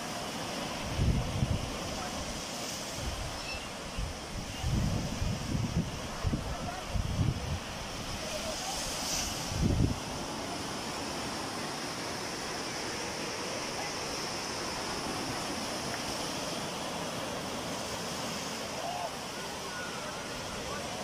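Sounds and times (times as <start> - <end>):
surf breaking on beach: 0.0 - 21.0
wind rumble on microphone: 0.8 - 2.1, 2.9 - 10.3.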